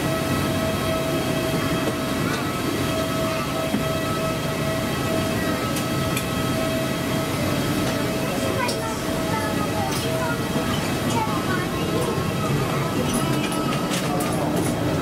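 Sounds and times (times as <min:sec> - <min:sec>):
aircraft air conditioning hum: 0:00.0 - 0:15.0.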